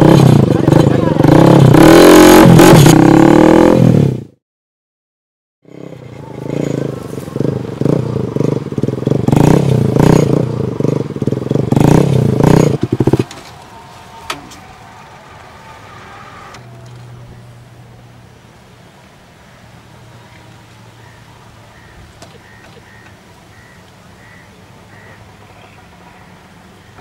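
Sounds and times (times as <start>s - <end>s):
motorcycle engine revving: 0.0s - 4.4s, 5.6s - 18.4s.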